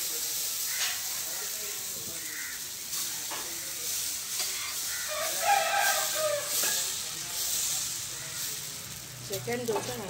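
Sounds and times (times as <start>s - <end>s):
batter sizzling on a griddle: 0.0s - 10.0s
rooster crowing: 4.8s - 6.8s.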